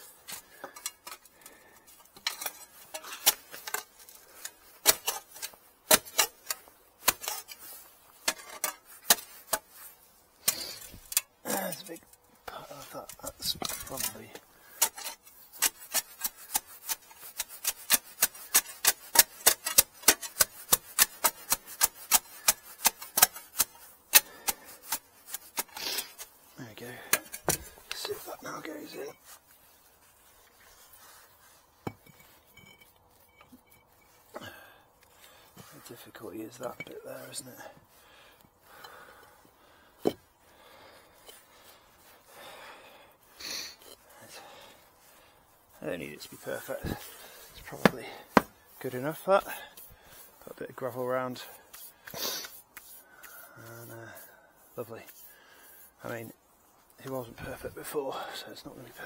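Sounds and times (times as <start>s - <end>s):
concrete slab scraping: 12.7s - 34.5s, 46.2s - 56.4s.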